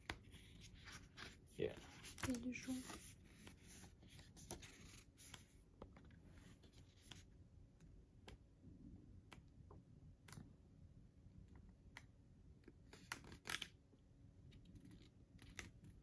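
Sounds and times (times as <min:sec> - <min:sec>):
booklet pages turning: 0:00.0 - 0:07.3, 0:12.6 - 0:13.8, 0:14.6 - 0:16.0.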